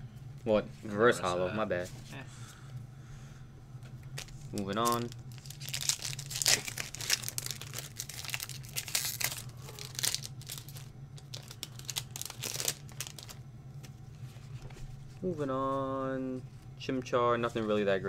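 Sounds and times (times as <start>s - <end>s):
foil wrapper tearing and crinkling: 4.2s - 13.4s.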